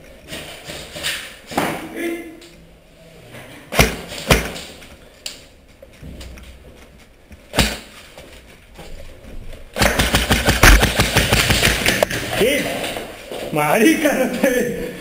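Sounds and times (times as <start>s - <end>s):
airsoft gun rapid clicks: 9.8s - 12.1s
sharp knocks: 9.8s - 12.3s.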